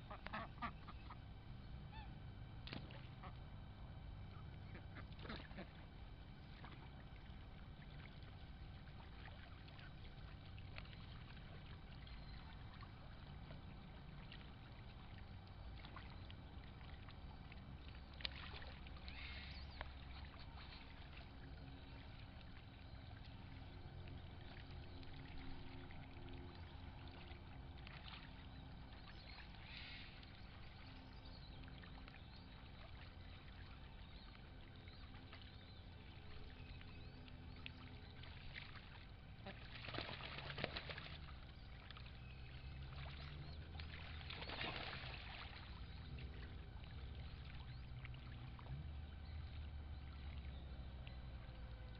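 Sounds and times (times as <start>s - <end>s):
ducks splashing in water: 0.0s - 1.2s, 1.9s - 3.4s, 4.6s - 30.9s, 38.2s - 50.4s
low steady rumble: 0.0s - 51.9s.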